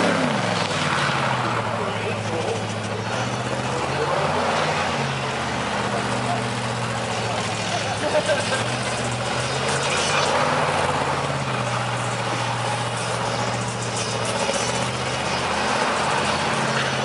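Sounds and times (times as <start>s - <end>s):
truck engine revving high: 0.0s - 17.0s
tyres squealing: 1.2s - 17.0s.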